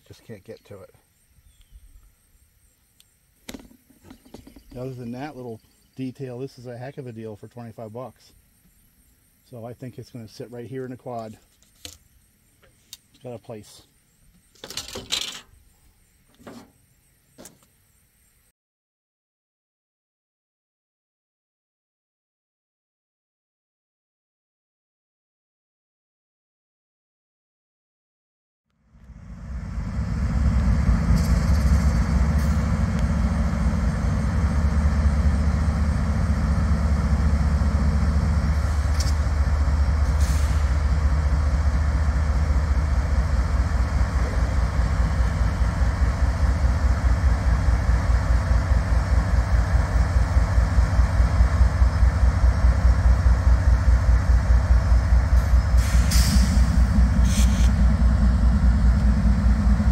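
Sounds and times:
sharp clicks or rattles: 14.5 - 15.5
vehicle engine running: 28.8 - 59.9.

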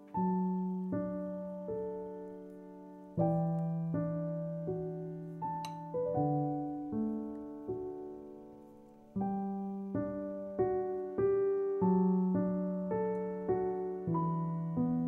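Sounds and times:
slow gentle solo piano: 0.0 - 15.0.

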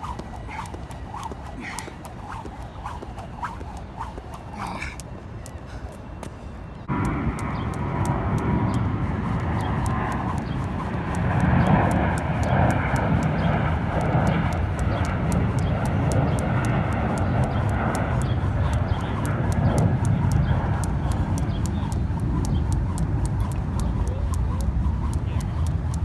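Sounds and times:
jump rope slapping asphalt: 0.0 - 26.0
loud steady rumbling: 6.8 - 26.0.

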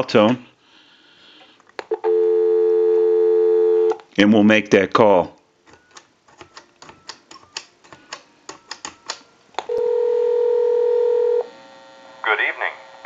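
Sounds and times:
telephone ringback tone: 2.0 - 4.0, 9.7 - 11.5.

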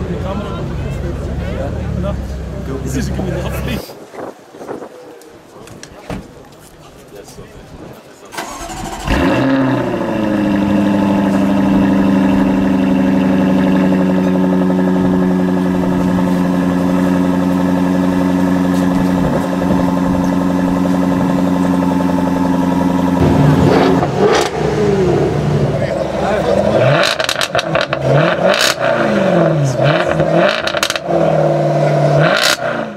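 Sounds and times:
car engine idling high: 8.4 - 32.6.

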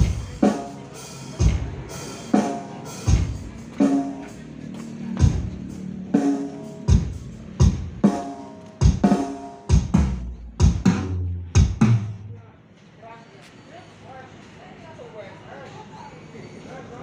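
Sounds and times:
keyboard music through speakers: 0.0 - 12.2
heavy drum beats: 0.0 - 12.3.

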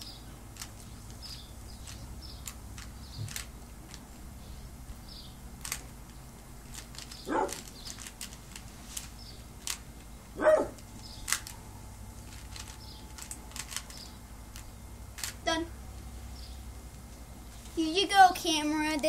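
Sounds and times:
puzzle cube clicking: 0.6 - 4.0, 5.6 - 5.9, 6.7 - 9.8, 12.3 - 15.4.

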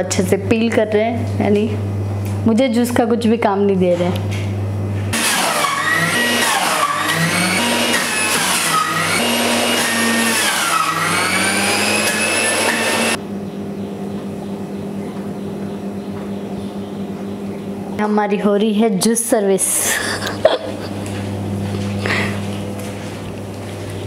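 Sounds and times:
juicer motor whining: 5.0 - 13.2.

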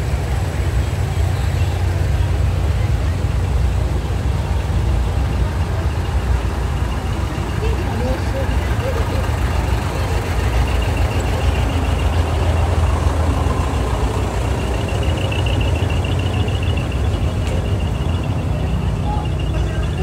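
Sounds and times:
truck diesel engine rumbling: 0.0 - 20.0.

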